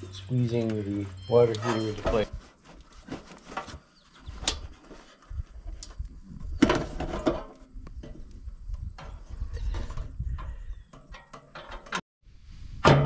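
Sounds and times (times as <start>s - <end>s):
clunks and scraping of metal: 0.1s - 12.0s
wind rumble on microphone: 4.3s - 11.1s, 12.3s - 13.0s.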